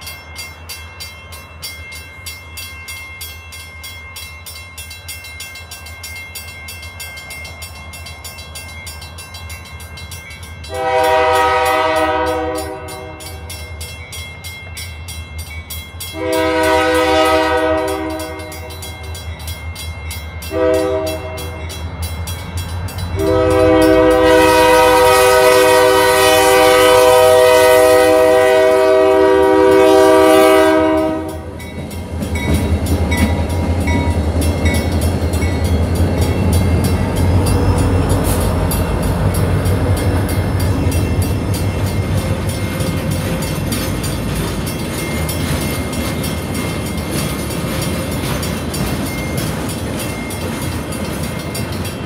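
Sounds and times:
crossing bells ringing: 0:00.0 - 0:52.0
locomotive air horn blasts: 0:10.7 - 0:13.5, 0:16.1 - 0:18.8, 0:20.5 - 0:21.6, 0:23.2 - 0:31.6.

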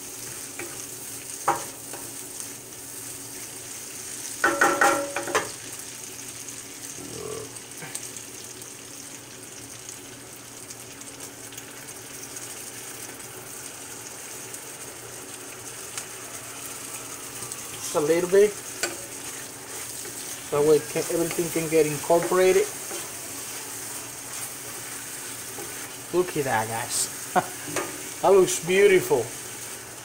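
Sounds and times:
vegetables sizzling in hot oil: 0:00.0 - 0:30.0
wooden spatula stirring: 0:17.9 - 0:28.2.

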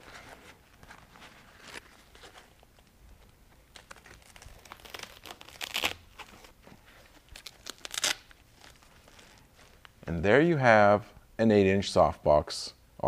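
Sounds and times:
fabric rustling: 0:00.0 - 0:10.0.

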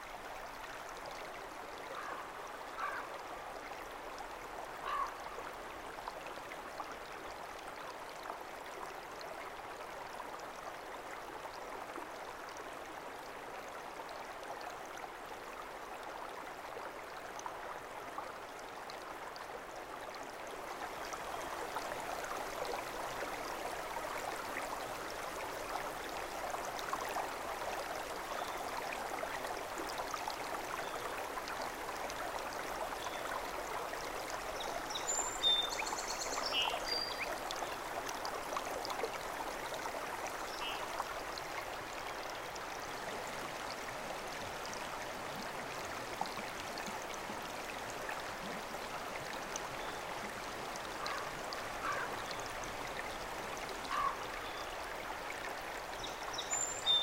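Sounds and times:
flowing water in a stream: 0:00.0 - 0:57.0.

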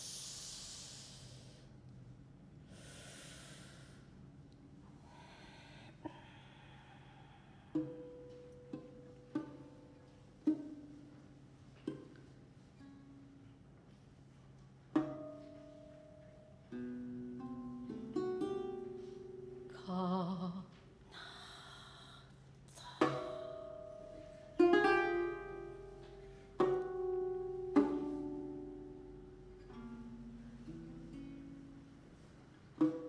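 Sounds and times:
breathy hiss: 0:00.0 - 0:01.8, 0:02.6 - 0:04.3, 0:04.9 - 0:08.3, 0:21.1 - 0:24.4
plucked lute: 0:07.7 - 0:21.0, 0:22.9 - 0:33.0.

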